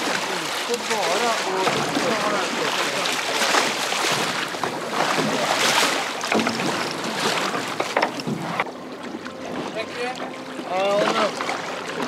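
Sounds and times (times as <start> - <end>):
sea water splashing against boat: 0.0 - 12.0.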